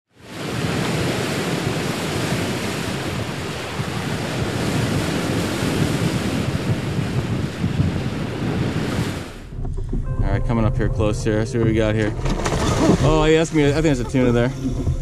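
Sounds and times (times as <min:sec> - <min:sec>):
ocean waves: 0:00.1 - 0:10.0
wind: 0:00.1 - 0:10.2, 0:11.9 - 0:15.0.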